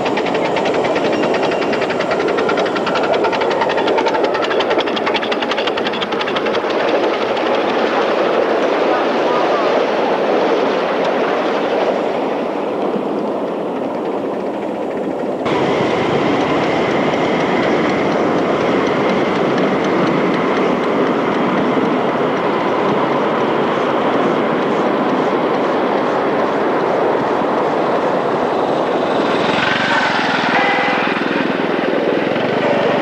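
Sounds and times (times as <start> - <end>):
wheels clicking over rail joints: 0.0 - 9.0, 11.0 - 33.0
miniature train wheels rumbling: 0.0 - 9.9, 11.0 - 33.0.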